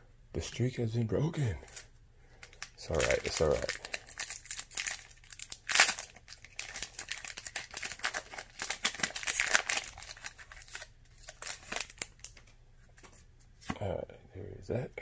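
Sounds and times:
foil wrapper crinkling: 1.6 - 12.5.

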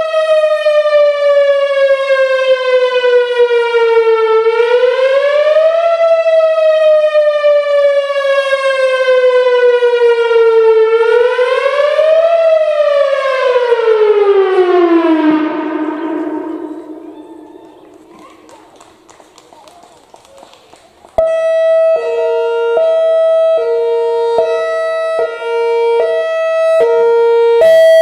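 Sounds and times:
warning siren wailing: 0.0 - 19.1, 21.2 - 28.0.

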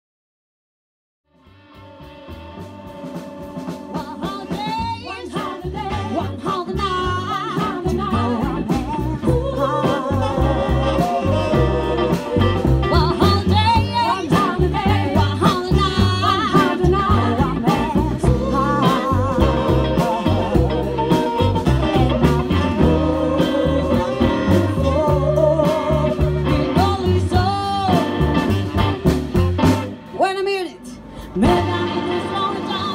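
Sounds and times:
saxophone: 1.3 - 30.0, 31.2 - 32.9
drums: 1.3 - 32.9
double bass: 1.4 - 30.2, 31.0 - 32.9
female vocal group singing: 3.5 - 21.6, 22.4 - 28.3, 31.4 - 32.9.

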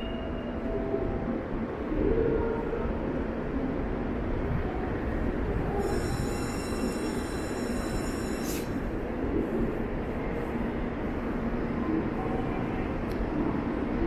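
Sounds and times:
train rumbling: 0.0 - 14.0
sharp high squeal: 5.8 - 8.8
high whining tones: 5.8 - 8.9.

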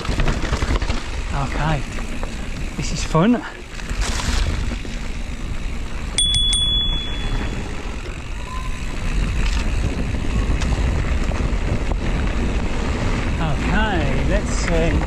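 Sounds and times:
wind and tyres rumbling: 0.0 - 15.0
bicycle bell ringing: 6.1 - 9.3.

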